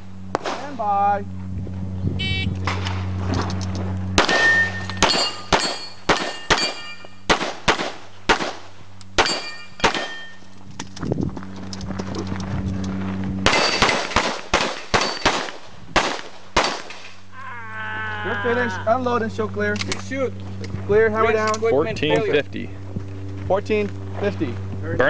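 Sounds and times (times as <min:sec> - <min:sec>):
pistol shots: 0:00.3 - 0:00.7, 0:04.2 - 0:10.4, 0:13.4 - 0:17.1
metallic ring of steel target: 0:02.3 - 0:07.4, 0:09.2 - 0:10.6, 0:13.4 - 0:15.5.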